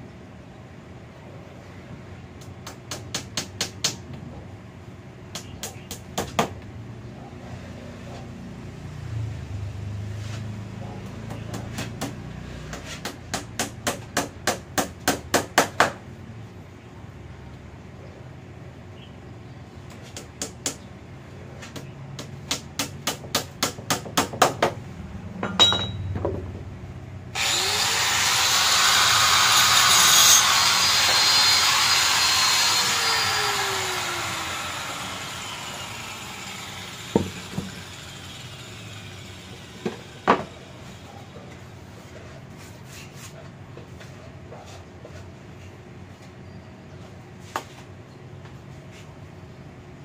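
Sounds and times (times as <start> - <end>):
angle grinder whine: 27.4 - 41.1.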